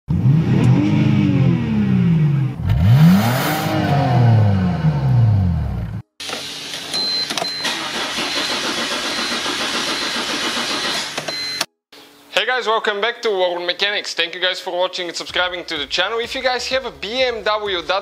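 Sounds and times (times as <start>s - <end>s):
car engine revving: 0.1s - 6.0s
engine cranking without starting: 7.4s - 11.5s.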